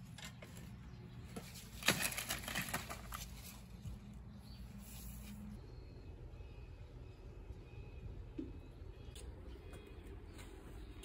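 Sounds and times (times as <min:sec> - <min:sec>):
leafy branches rustling and knocking: 0:01.3 - 0:04.0.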